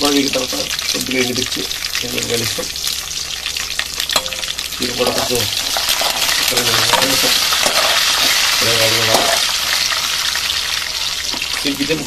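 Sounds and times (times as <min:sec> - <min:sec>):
spices sizzling in hot oil: 0:00.0 - 0:12.0
spoon stirring in metal pan: 0:04.0 - 0:11.6.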